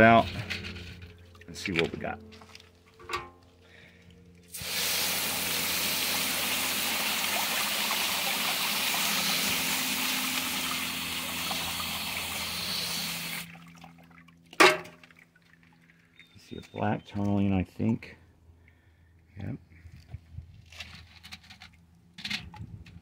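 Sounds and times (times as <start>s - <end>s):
hose nozzle spraying water: 4.5s - 13.6s.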